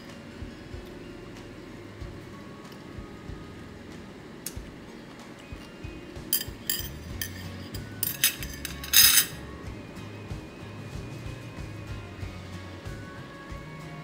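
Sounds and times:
metal chopsticks clinking on a plate: 0:06.4 - 0:09.4.

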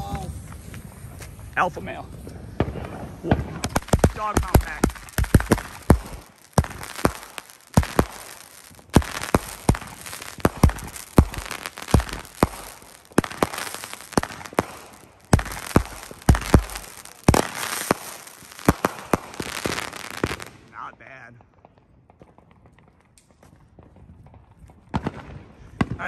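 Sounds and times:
fireworks bangs: 0:00.0 - 0:26.0.

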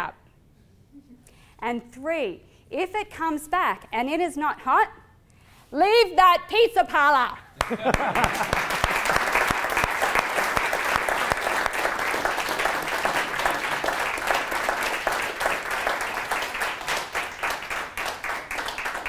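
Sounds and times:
audience applauding: 0:07.6 - 0:19.0.

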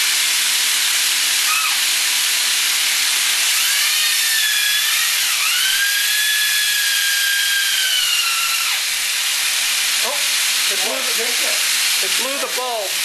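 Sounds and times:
loud steady hiss: 0:05.4 - 0:13.0.

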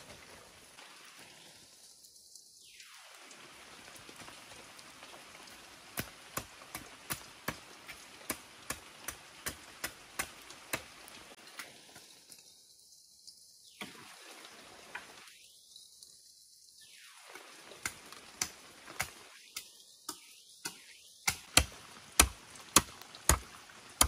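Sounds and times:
steady hiss: 0:00.0 - 0:24.0
machete chopping bamboo: 0:08.3 - 0:10.9, 0:20.1 - 0:23.6.

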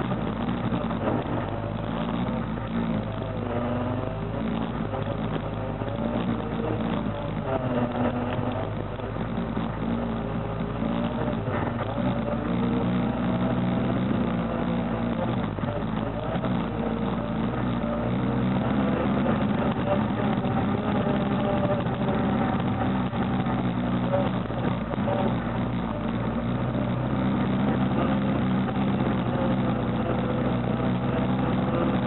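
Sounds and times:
atv engine running: 0:00.0 - 0:32.0.

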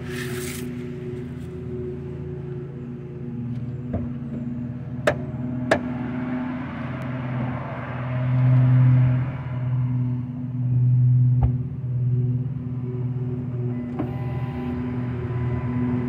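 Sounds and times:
car exhaust drone: 0:00.0 - 0:16.0.

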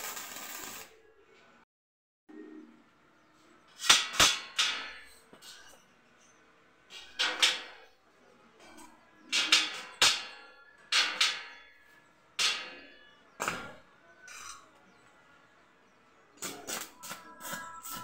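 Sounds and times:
hammer striking steel: 0:09.3 - 0:14.6.

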